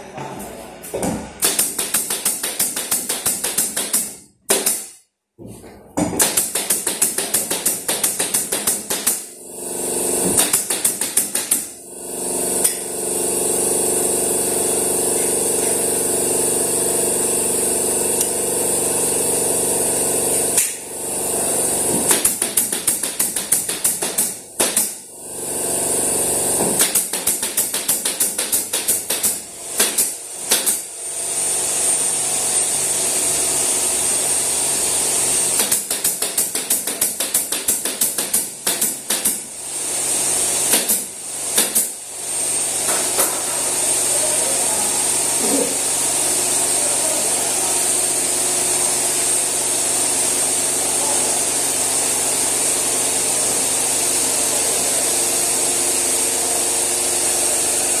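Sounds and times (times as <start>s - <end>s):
nail gun firing: 1.4s - 5.0s, 6.1s - 9.4s, 10.0s - 11.8s, 20.3s - 20.9s, 21.8s - 25.0s, 26.5s - 31.0s, 35.1s - 43.6s.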